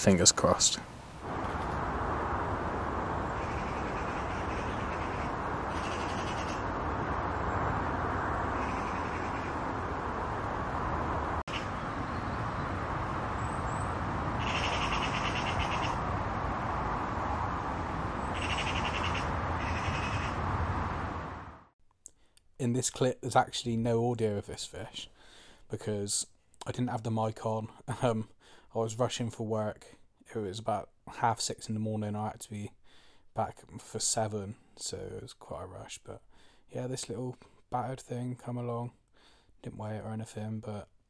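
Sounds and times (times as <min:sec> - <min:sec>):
steady rushing noise: 0:00.0 - 0:21.7
rasping crow-like bird calls: 0:03.3 - 0:06.8, 0:08.4 - 0:09.8, 0:11.5 - 0:11.9, 0:14.4 - 0:16.1, 0:18.2 - 0:20.5.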